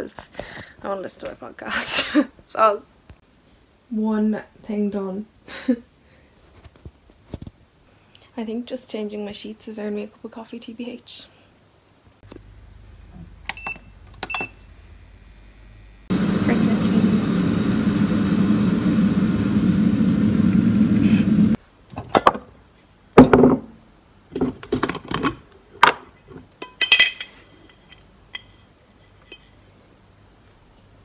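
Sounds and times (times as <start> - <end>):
steady loud noise: 14.8 - 21.6.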